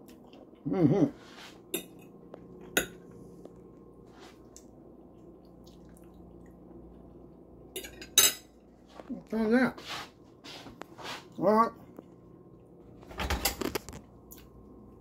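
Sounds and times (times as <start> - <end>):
fork clinking against plate: 7.8 - 8.5.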